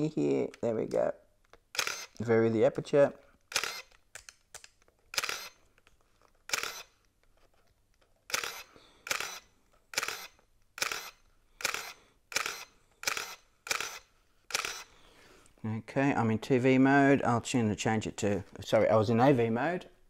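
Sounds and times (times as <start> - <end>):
camera shutter clack with motor advance: 1.7 - 2.2, 3.5 - 4.4, 5.1 - 5.6, 6.5 - 7.0, 8.3 - 14.9.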